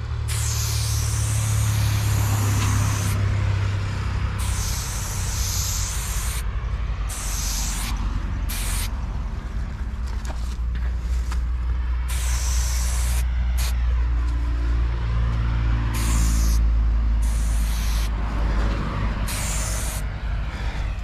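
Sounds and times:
spray bottle hissing spurts: 0.3s - 3.2s, 4.4s - 6.5s, 7.1s - 9.0s, 12.0s - 13.8s, 15.9s - 18.2s, 19.2s - 20.1s.

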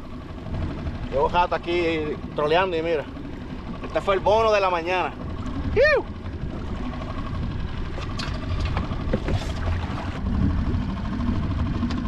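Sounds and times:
open water noise: 0.0s - 12.0s
wind rumble on microphone: 3.6s - 12.0s.

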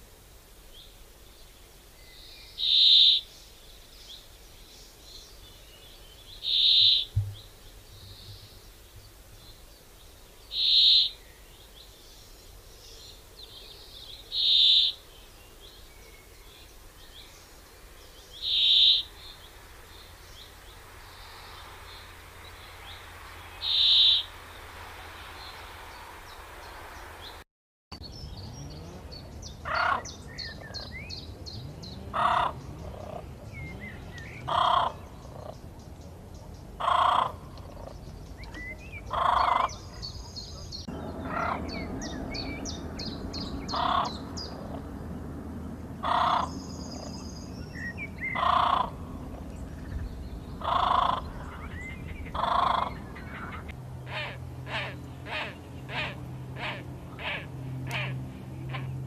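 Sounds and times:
small birds chirping: 0.7s - 27.4s, 28.0s - 59.0s
bird giving harsh calls: 18.4s - 19.1s, 23.6s - 24.3s, 52.3s - 58.9s.

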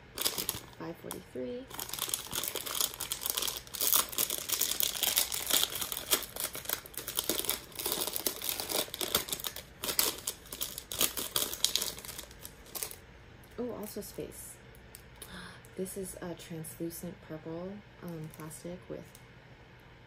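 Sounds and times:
plastic packet crinkling and tearing: 0.0s - 13.0s.

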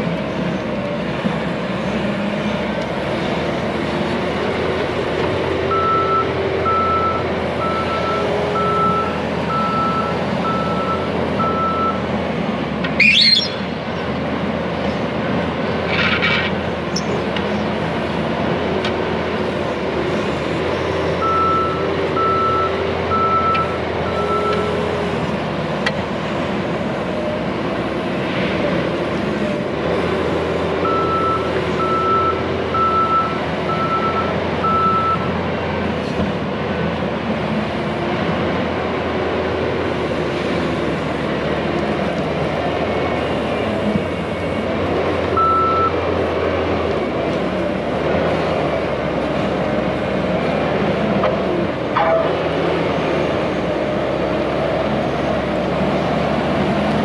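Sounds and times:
diesel engine running: 0.0s - 57.0s
reverse alarm beeping: 13.0s - 13.6s, 45.4s - 46.0s.

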